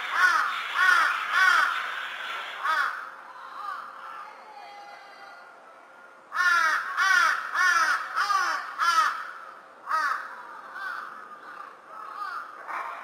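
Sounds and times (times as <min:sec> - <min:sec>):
crow cawing: 0:00.1 - 0:01.8, 0:02.6 - 0:04.4, 0:06.3 - 0:13.0.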